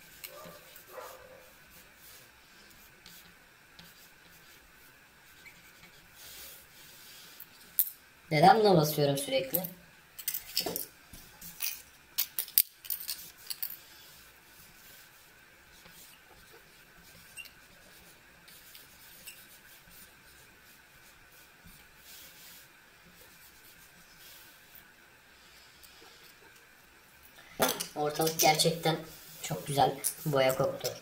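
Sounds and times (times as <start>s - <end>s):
marker scratching on paper: 0.1s - 7.1s, 15.8s - 24.4s.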